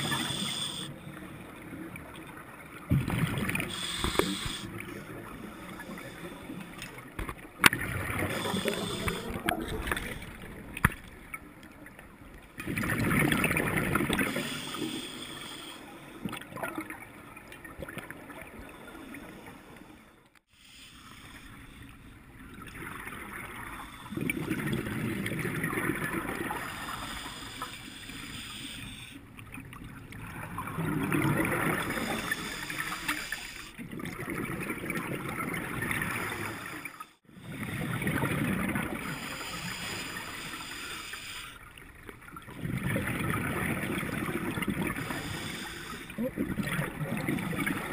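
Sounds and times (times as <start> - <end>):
exhaled bubbles gurgling underwater: 0.0 - 19.5, 21.4 - 47.9.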